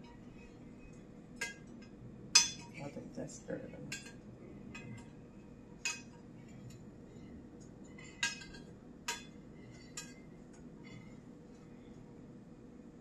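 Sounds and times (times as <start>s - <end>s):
metal spoon clinking on glass dish: 8.0s - 9.3s.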